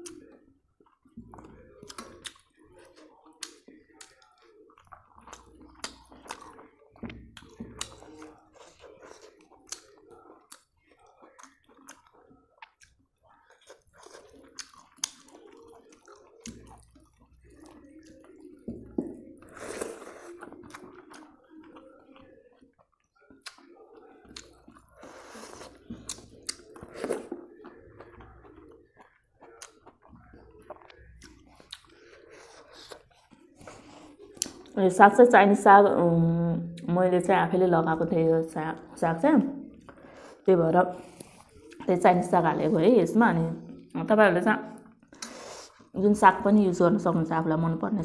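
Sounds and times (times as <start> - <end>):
person chewing food: 0.0 - 34.8, 39.6 - 41.9, 44.7 - 46.0.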